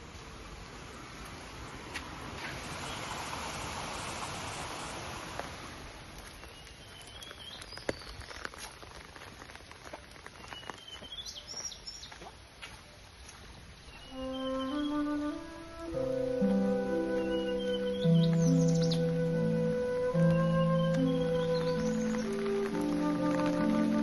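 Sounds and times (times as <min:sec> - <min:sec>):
birds chirping: 0:06.0 - 0:09.1, 0:09.8 - 0:24.0.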